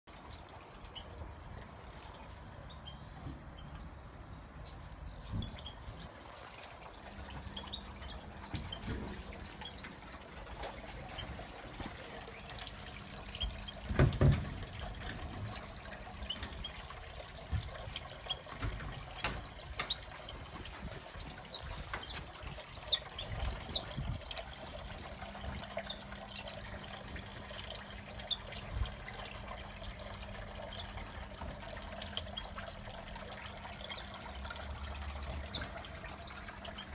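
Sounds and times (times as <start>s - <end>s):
birds chirping: 0.0s - 36.9s
water trickling in fountain: 0.0s - 36.9s
knocks: 13.9s - 14.7s.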